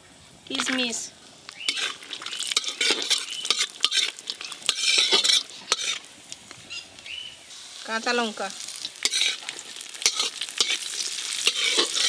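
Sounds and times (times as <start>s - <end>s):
light sizzle: 0.0s - 12.0s
metal spatula scraping wok: 1.6s - 7.0s, 8.0s - 12.0s.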